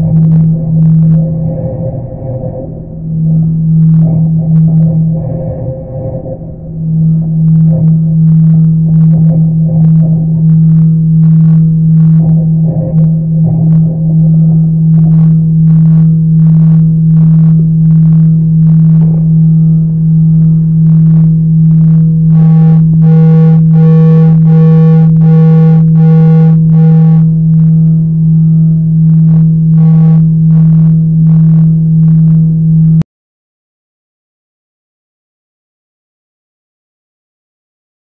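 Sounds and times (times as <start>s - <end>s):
pulsing electronic drone: 0.0s - 33.0s.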